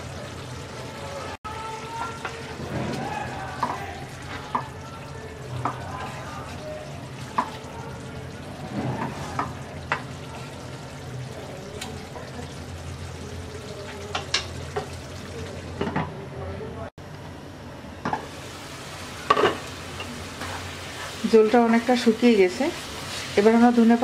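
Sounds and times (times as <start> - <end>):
simmering sizzle: 0.0 - 16.0, 17.0 - 24.0
spatula stirring food: 1.8 - 10.8, 19.2 - 22.0
spatula tapping pan: 7.3 - 7.6.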